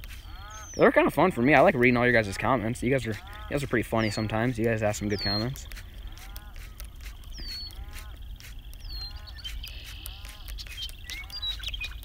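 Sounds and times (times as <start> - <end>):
whistled bird notes: 0.1 - 12.0
short arched animal call: 5.1 - 11.6.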